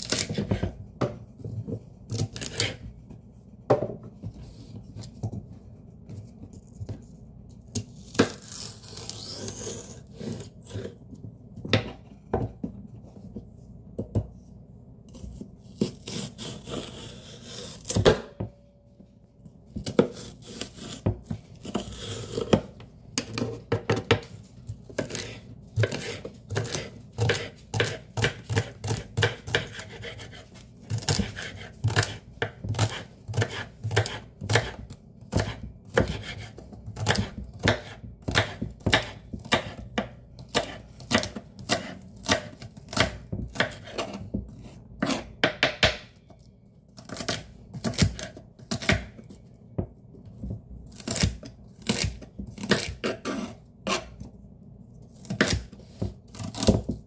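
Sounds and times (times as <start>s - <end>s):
knife chopping on wooden board: 24.9s - 46.2s, 47.0s - 49.2s, 55.2s - 57.0s.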